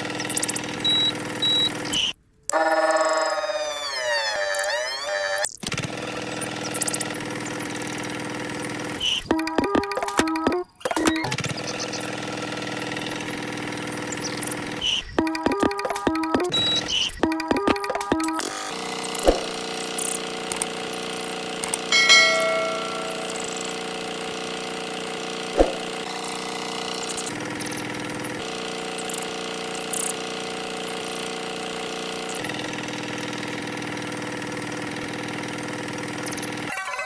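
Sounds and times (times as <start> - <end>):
toy electric motor humming: 2.5 - 23.6, 24.4 - 37.0
bell-like ding: 21.9 - 24.1.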